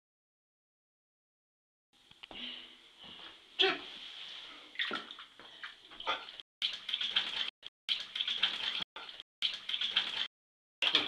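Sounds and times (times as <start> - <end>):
water splashing in bathtub: 4.7 - 11.0.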